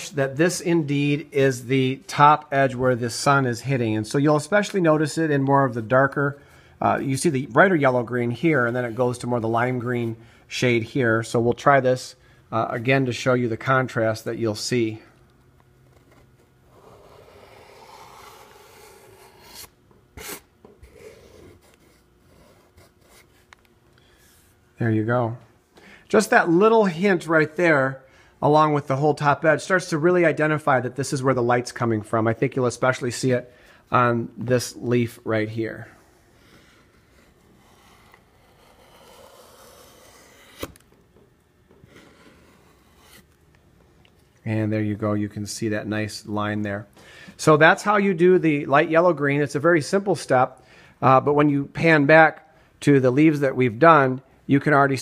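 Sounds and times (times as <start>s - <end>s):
paint marker scratching: 37.0s - 40.7s.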